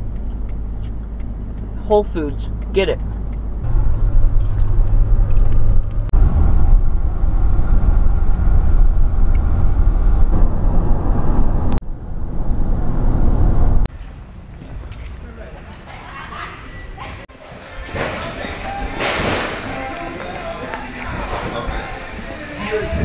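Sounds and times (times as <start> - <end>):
car road and engine rumble: 0.0 - 15.4.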